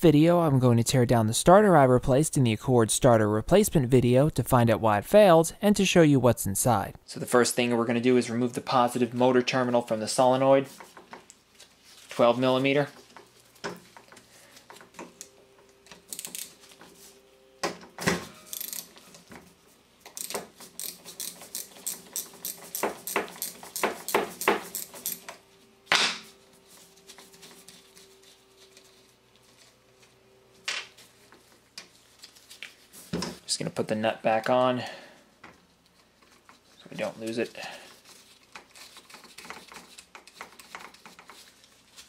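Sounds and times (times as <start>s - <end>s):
wrench clicking on metal: 18.5s - 18.9s, 20.1s - 25.2s.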